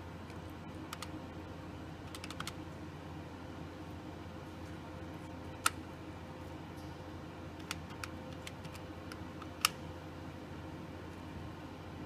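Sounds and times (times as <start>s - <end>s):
steady low hum: 0.0s - 12.0s
keypad key clicks: 2.1s - 2.6s.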